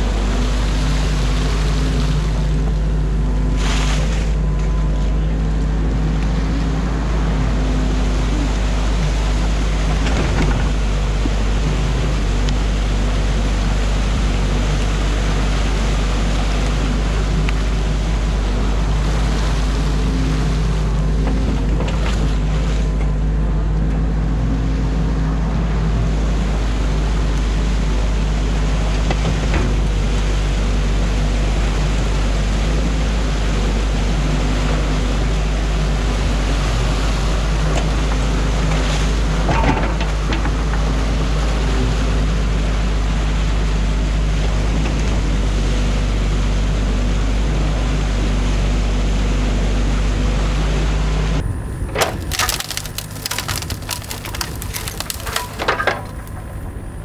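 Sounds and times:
constant rushing noise: 0.0s - 57.0s
excavator diesel engine running: 0.0s - 57.0s.

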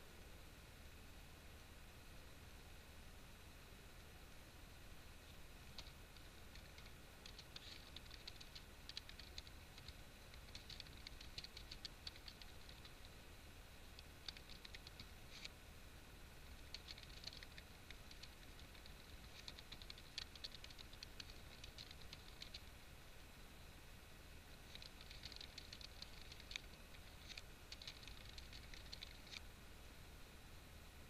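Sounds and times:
typing on computer keyboard: 5.7s - 13.0s, 14.0s - 15.5s, 16.6s - 22.7s, 24.7s - 29.4s.

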